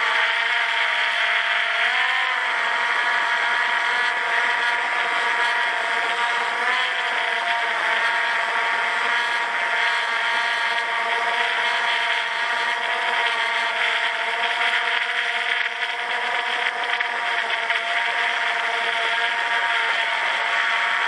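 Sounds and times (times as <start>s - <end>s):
drone propellers whirring: 0.0s - 21.0s.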